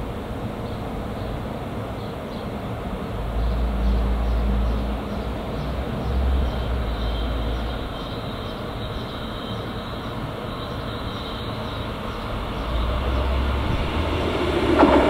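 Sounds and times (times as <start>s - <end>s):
deep train rumble: 0.0s - 15.0s
train running noise: 2.6s - 15.0s
faint high whine: 7.1s - 15.0s.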